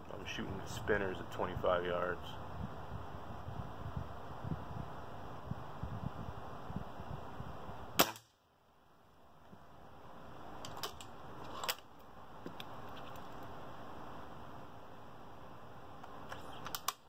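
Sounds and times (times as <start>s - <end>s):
air rifle shot: 8.0s - 8.4s.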